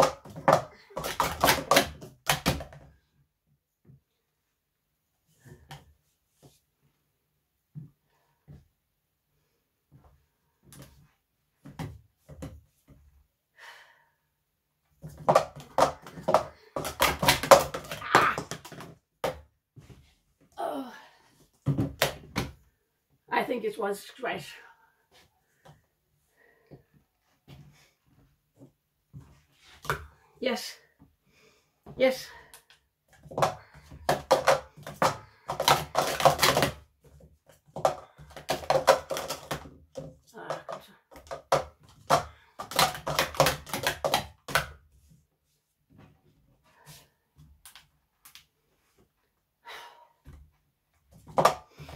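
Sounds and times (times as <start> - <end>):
plastic cups clattering: 0.0 - 2.9, 15.0 - 19.4, 32.6 - 44.8, 51.2 - 51.9.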